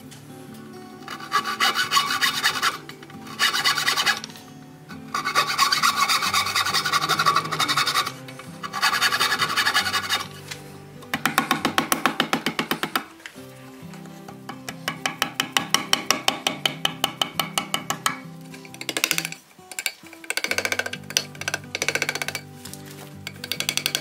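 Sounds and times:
saw cutting hardwood: 1.1 - 4.2, 5.1 - 10.3, 18.8 - 22.4.

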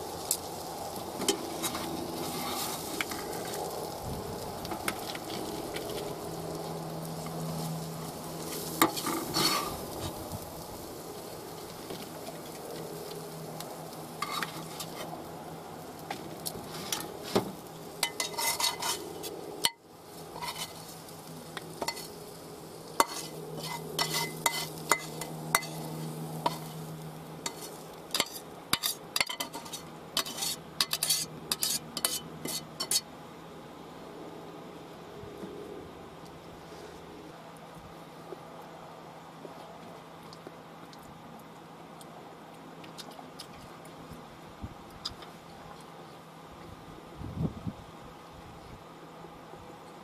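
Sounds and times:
food sizzling: 0.0 - 33.1
metal utensil scraping frying pan: 1.2 - 3.5, 8.5 - 10.2, 14.2 - 15.2, 16.6 - 21.0, 21.8 - 22.2, 23.0 - 26.8, 27.4 - 33.1
clinks and scrapes onto plate: 16.7 - 19.8, 20.4 - 20.8, 23.0 - 25.8, 27.5 - 33.1.

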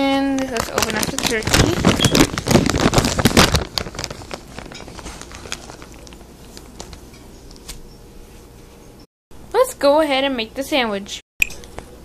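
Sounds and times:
plastic packaging crinkling: 0.2 - 7.9.

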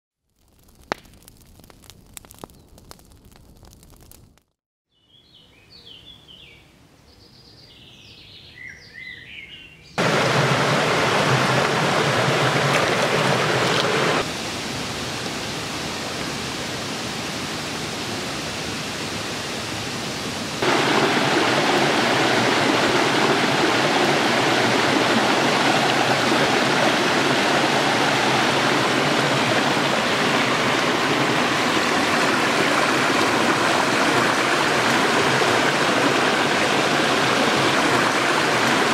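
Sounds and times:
stream running water: 10.0 - 38.9.

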